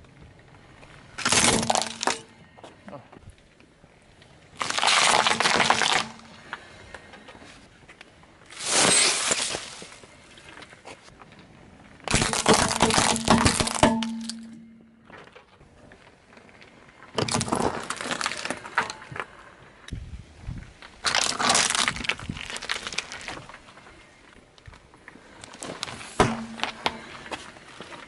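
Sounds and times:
plastic toys splitting under wheel: 0:01.2 - 0:02.3, 0:17.2 - 0:19.1
tyre crushing objects on asphalt: 0:01.2 - 0:02.3, 0:04.6 - 0:06.4, 0:12.0 - 0:15.4, 0:17.1 - 0:19.2, 0:25.5 - 0:28.0.

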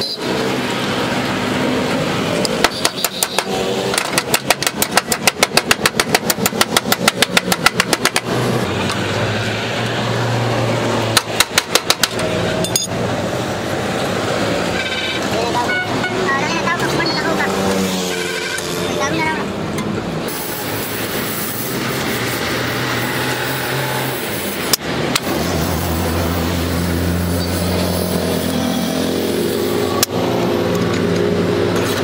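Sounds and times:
arc welding crackling hiss: 0:20.3 - 0:30.0.

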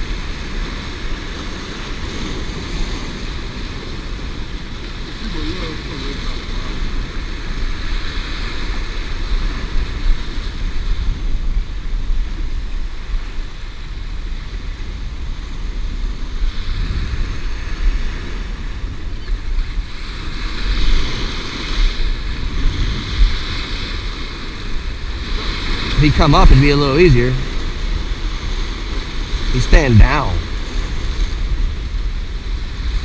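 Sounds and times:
surf breaking against rocks: 0:19.9 - 0:31.4.

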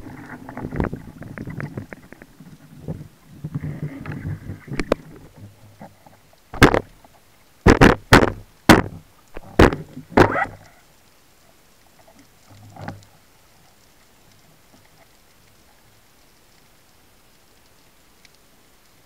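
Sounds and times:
knocks on wooden speargun underwater: 0:06.6 - 0:06.9, 0:07.7 - 0:10.4.

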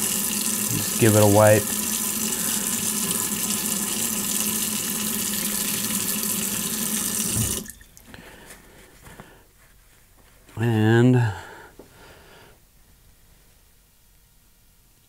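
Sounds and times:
faucet water running into sink: 0:00.0 - 0:07.9.

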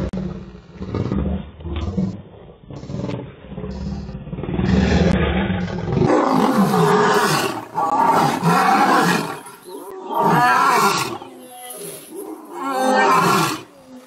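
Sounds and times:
low rumble: 0:00.0 - 0:06.0
lions calling: 0:00.8 - 0:14.0.

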